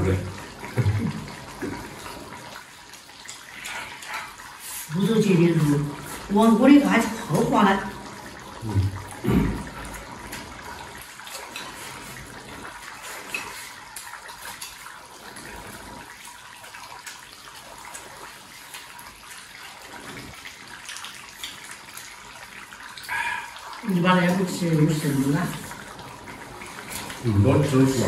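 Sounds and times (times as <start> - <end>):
broth simmering: 0.0 - 28.0.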